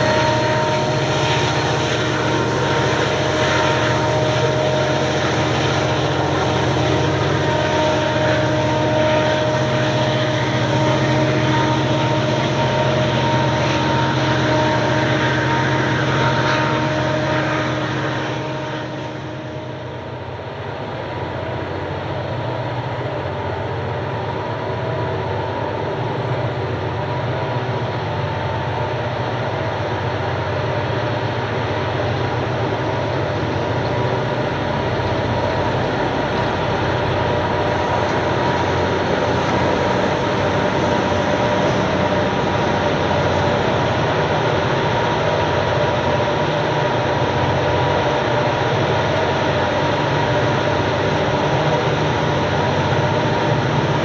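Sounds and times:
diesel locomotive engine drone: 0.0 - 54.0
high whining hum: 0.0 - 54.0.

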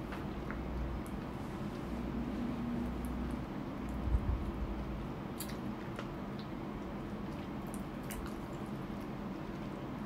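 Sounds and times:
wet chewing and sucking: 5.3 - 10.0
wet mouth clicks and smacks: 5.4 - 6.6, 7.4 - 8.7.

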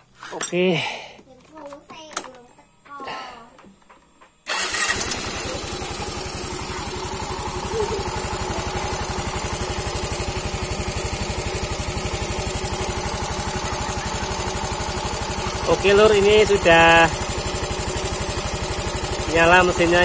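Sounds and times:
scooter engine idling: 4.5 - 20.0.

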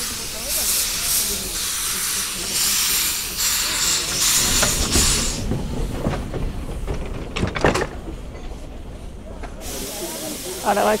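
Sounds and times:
steam locomotive hissing steam: 0.0 - 5.7, 9.5 - 11.0
metallic clanks and knocks: 4.3 - 9.6.

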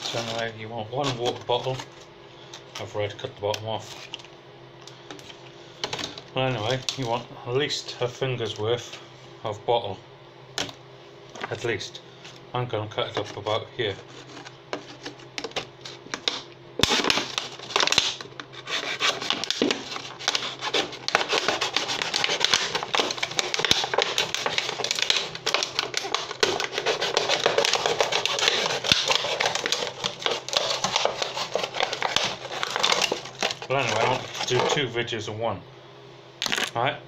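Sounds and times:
knife sawing plastic bottle: 16.8 - 34.8.

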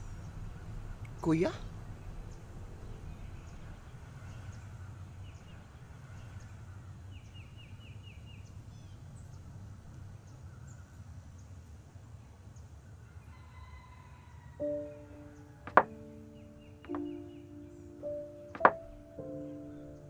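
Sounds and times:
faint bird chirps: 13.3 - 20.0.

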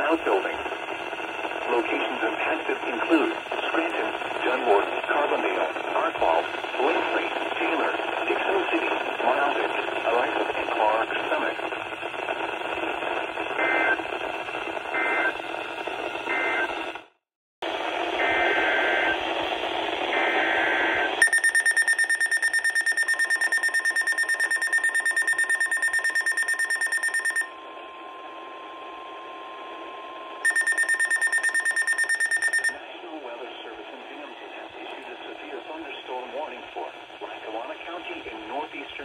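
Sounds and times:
radio static: 0.0 - 15.4, 18.1 - 21.2, 30.5 - 39.0
faint steady warning tone: 18.2 - 19.2, 20.1 - 36.9
data tones: 20.2 - 27.6, 30.4 - 32.8
fast-pulsing alert beep: 21.2 - 27.5, 30.4 - 32.8.

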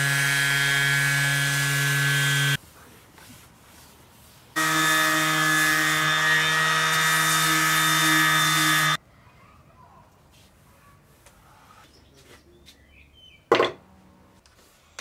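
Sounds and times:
orbital sander buzzing on wood: 0.0 - 2.6, 4.6 - 9.0.

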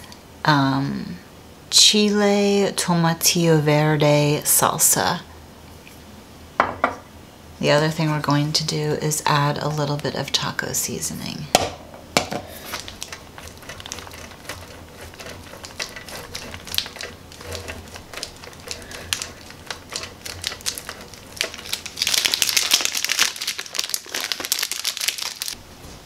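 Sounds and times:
plastic wrapper crinkling: 12.5 - 25.6
cheese grater rasping: 12.6 - 24.6.

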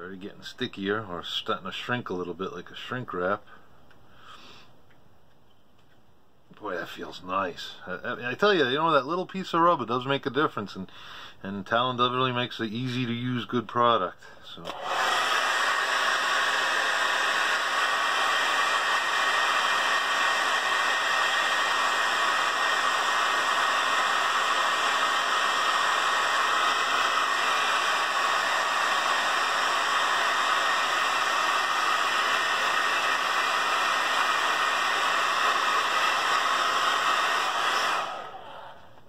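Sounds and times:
hair dryer blowing: 14.6 - 39.0.

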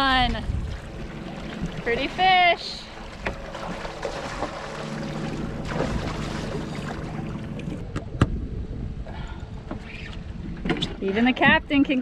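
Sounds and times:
boat motor idling: 0.0 - 8.1
wind: 0.0 - 12.0.

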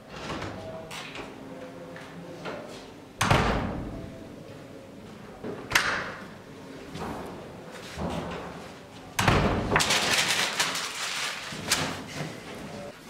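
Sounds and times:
door thud: 3.2 - 3.9, 9.2 - 9.9
wooden door banging open: 3.2 - 3.9, 9.2 - 10.0.

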